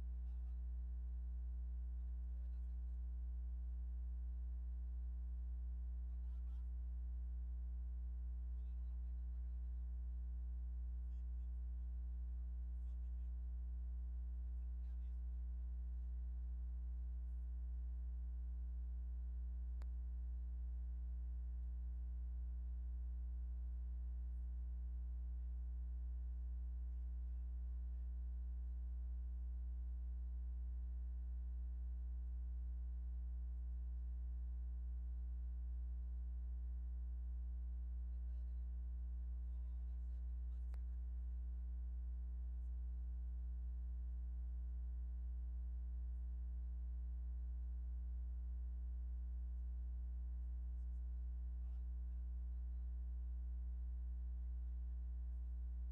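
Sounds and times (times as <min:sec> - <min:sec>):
faint click: 0:19.8 - 0:20.0, 0:40.5 - 0:41.0.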